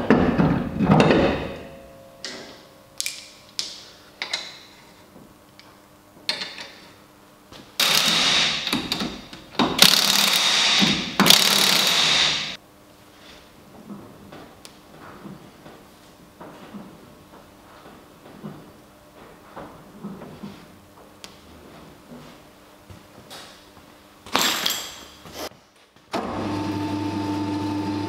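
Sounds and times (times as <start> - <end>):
ratchet wrench ratcheting: 9.8 - 12.3.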